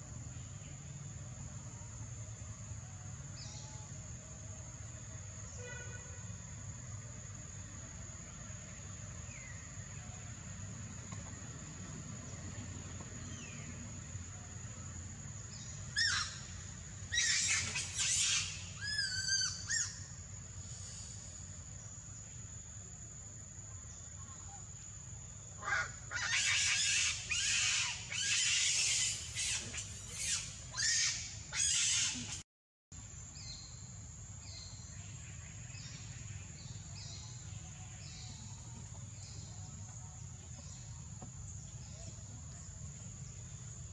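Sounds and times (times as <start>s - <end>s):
baby monkey screaming and crying: 15.9s - 20.1s, 25.7s - 32.4s.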